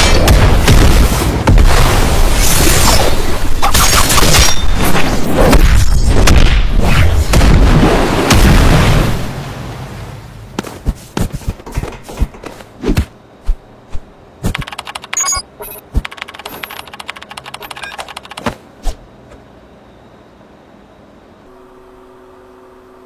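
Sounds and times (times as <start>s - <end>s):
brief high electronic tone: 14.7s - 15.8s.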